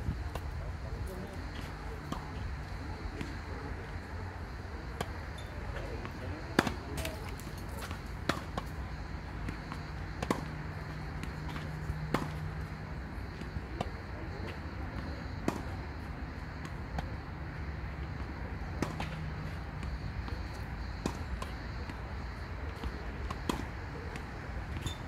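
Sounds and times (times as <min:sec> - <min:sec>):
tennis ball pops: 0:11.2 - 0:12.4.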